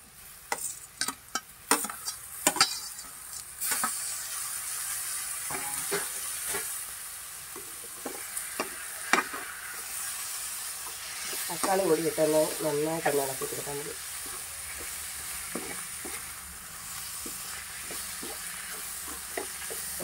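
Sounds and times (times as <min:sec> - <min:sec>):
tomatoes sizzling in hot oil: 0:00.0 - 0:20.0
metal spoon scraping pan: 0:00.5 - 0:03.9
tomatoes clattering into pan: 0:00.5 - 0:04.0.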